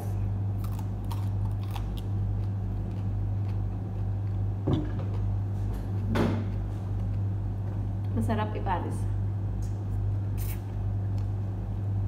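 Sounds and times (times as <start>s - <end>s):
onion being chewed: 0.6s - 4.6s, 5.8s - 7.4s, 10.3s - 11.4s.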